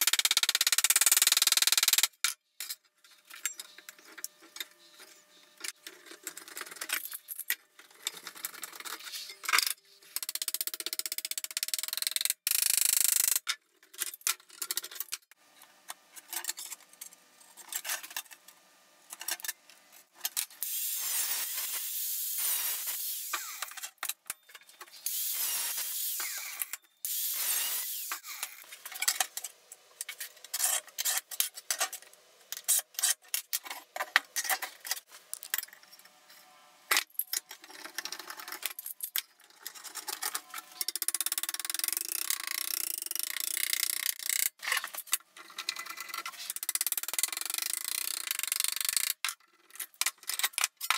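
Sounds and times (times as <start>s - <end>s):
angle grinder cutting metal: 20.6s - 23.8s, 25.1s - 28.6s.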